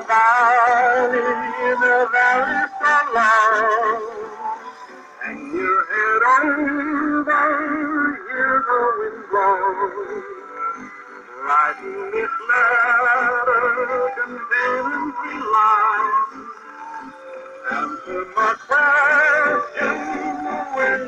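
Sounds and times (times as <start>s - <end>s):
old song on phonograph: 0.0s - 21.0s.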